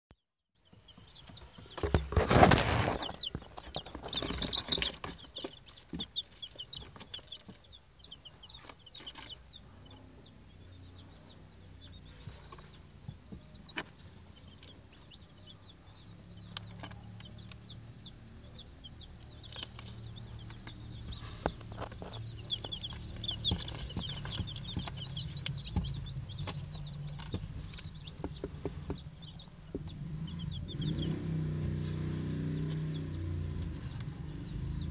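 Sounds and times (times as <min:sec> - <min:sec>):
chicks peeping: 0:00.6 - 0:34.9
loud rustling: 0:01.8 - 0:05.5.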